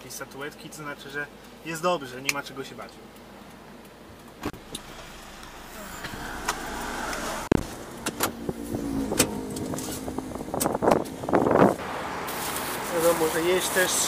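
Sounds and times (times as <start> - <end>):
car engine and road noise: 3.0 - 14.0.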